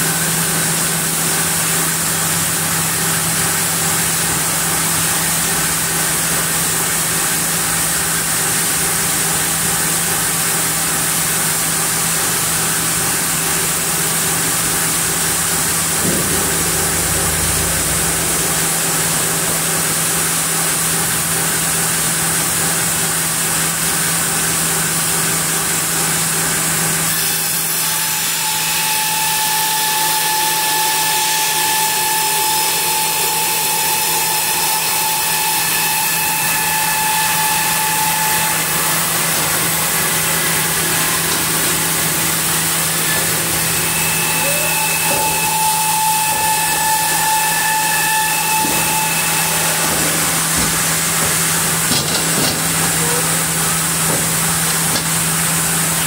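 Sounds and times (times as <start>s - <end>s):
band saw running: 0.0s - 56.0s
knock: 16.0s - 17.0s, 49.8s - 52.9s
whining tone: 42.9s - 55.1s.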